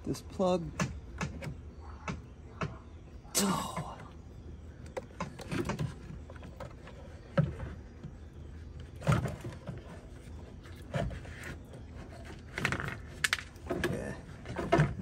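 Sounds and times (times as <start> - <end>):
plastic tank knocks and clunks: 13.6 - 15.0.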